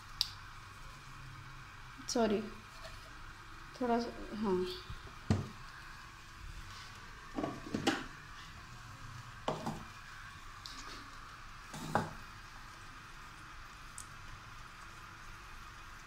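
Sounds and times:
faint hiss of gas flame: 0:00.0 - 0:16.0.

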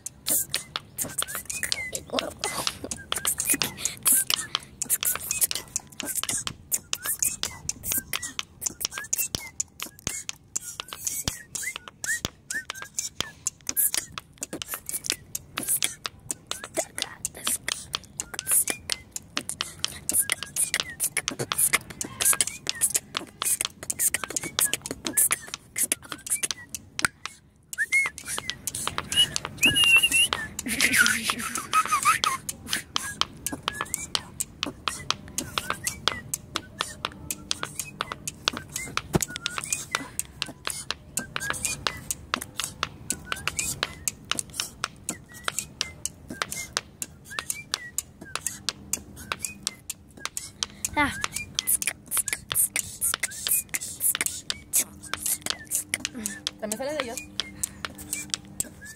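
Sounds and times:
stones clicking on stone floor: 0:51.2 - 0:58.7.

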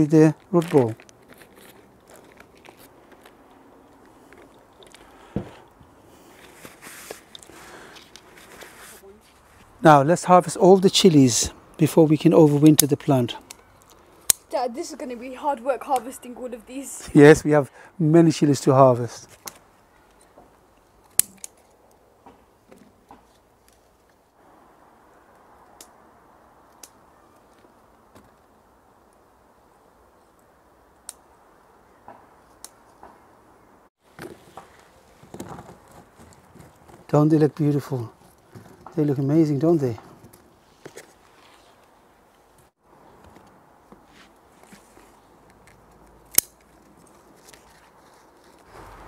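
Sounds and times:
compost crackling and crunching: 0:00.0 - 0:10.3, 0:34.0 - 0:42.6, 0:43.4 - 0:49.0
soft rustle: 0:00.3 - 0:09.8, 0:34.0 - 0:49.0.

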